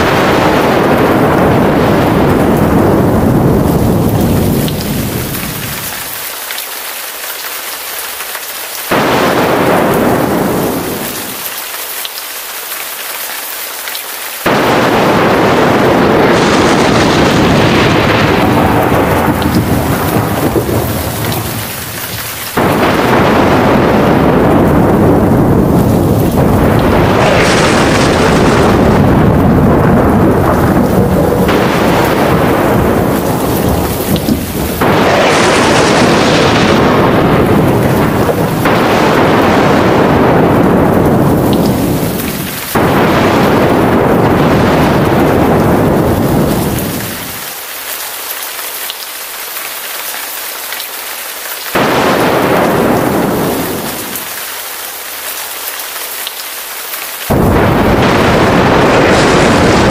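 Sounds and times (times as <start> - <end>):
thunder rolling: 0.0 - 6.2, 8.9 - 11.5, 14.4 - 47.5, 51.8 - 54.6, 57.3 - 59.9
heavy rain: 0.0 - 59.9.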